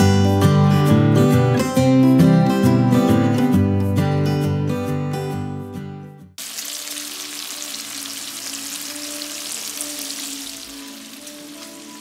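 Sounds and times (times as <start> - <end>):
bacon sizzling in a frying pan: 6.4 - 12.0.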